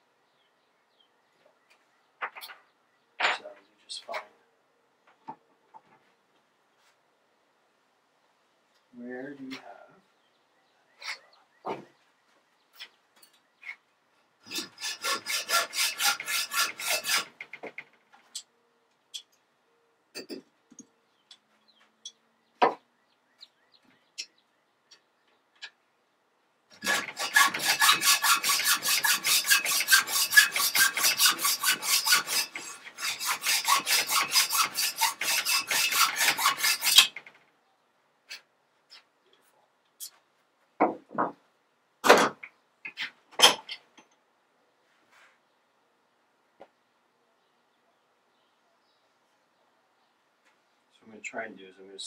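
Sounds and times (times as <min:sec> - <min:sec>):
hacksaw cutting metal: 0:14.4 - 0:17.8, 0:26.7 - 0:37.3.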